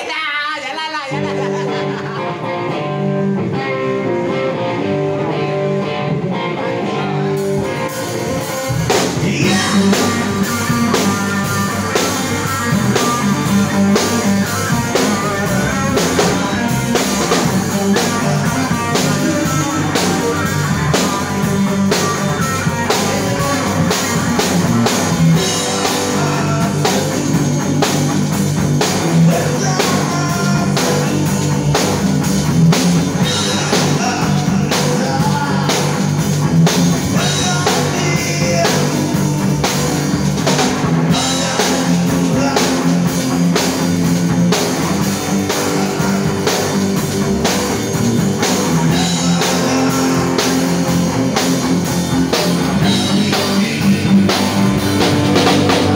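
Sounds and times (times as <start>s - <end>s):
live rock band playing: 0.0s - 55.9s
drum kit and cymbals: 7.2s - 55.9s
electric guitar held notes: 48.1s - 55.9s.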